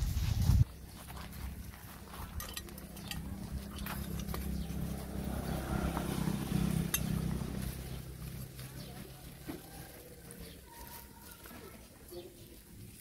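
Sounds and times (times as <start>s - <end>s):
plate clicks and clinks: 2.4s - 4.4s.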